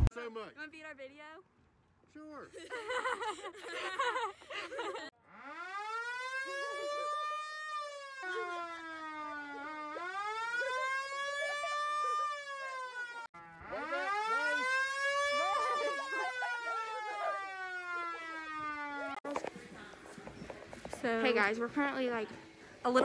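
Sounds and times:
police siren wailing: 0:04.8 - 0:20.3
voices: 0:06.4 - 0:12.8, 0:13.6 - 0:23.0.

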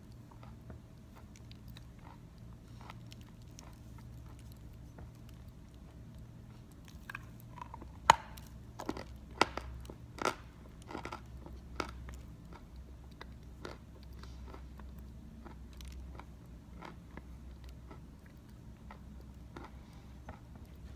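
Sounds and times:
chalk being bitten and chewed: 0:00.4 - 0:09.6.

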